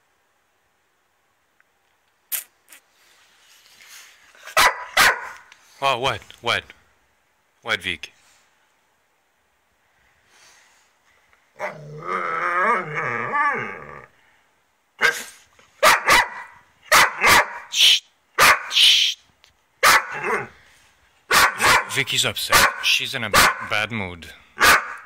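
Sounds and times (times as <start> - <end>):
dog barking and yipping: 4.4 - 5.5, 15.0 - 17.8, 18.4 - 18.8, 19.8 - 20.5, 21.3 - 23.7, 24.6 - 25.0
dog growling: 11.6 - 14.1.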